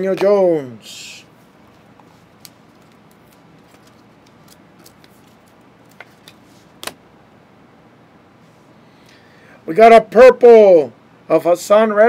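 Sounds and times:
cards and foil packs handled: 1.7s - 7.0s.

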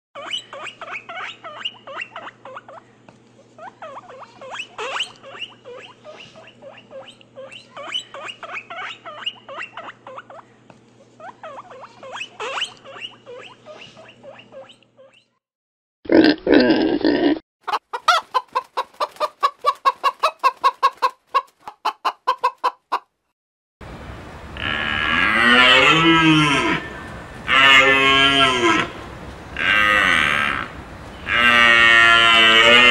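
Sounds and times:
loud animal call: 24.6s - 29.0s, 29.6s - 32.9s
high animal calls and chatter: 29.6s - 32.9s.

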